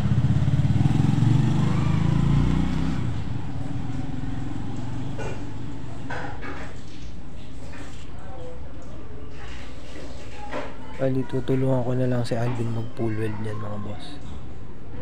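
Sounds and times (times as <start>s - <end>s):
small engine running: 0.0s - 5.4s.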